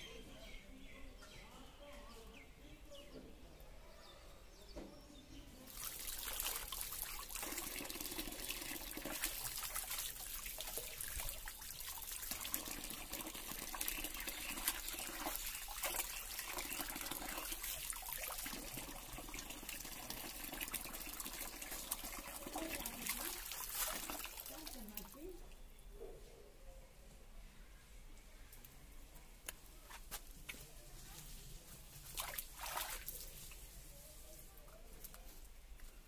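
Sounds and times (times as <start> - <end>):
tap water running into basin: 5.7 - 25.2
hands splashing in water: 23.0 - 25.1, 32.1 - 33.4.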